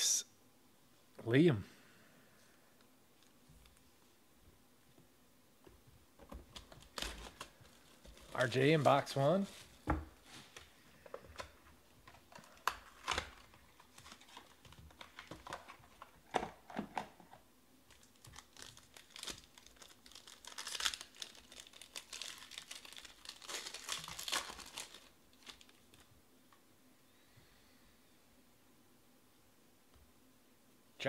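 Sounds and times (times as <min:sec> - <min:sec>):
card pack wrapper crinkling: 0:06.3 - 0:09.7, 0:11.4 - 0:16.4, 0:17.9 - 0:26.1.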